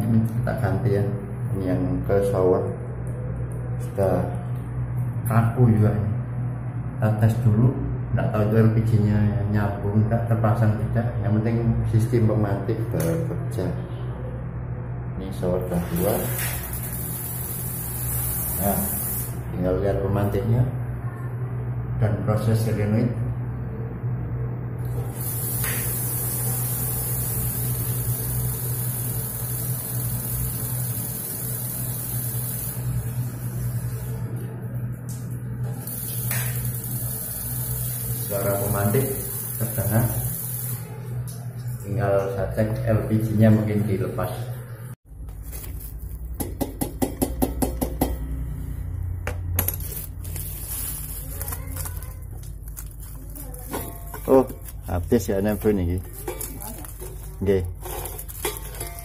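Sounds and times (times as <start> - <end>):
shower water rushing: 15.6 - 19.4, 24.8 - 34.4, 35.1 - 42.0
electric igniter sparking hiss: 15.8 - 19.4, 24.9 - 33.2.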